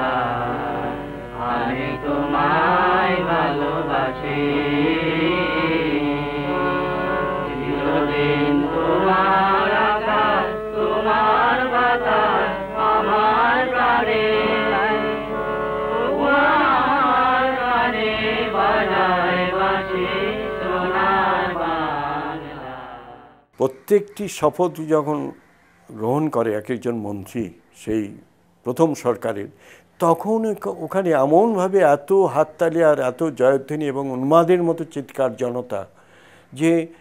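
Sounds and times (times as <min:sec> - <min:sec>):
person singing sliding notes: 0:00.0 - 0:23.2
music: 0:00.0 - 0:24.4.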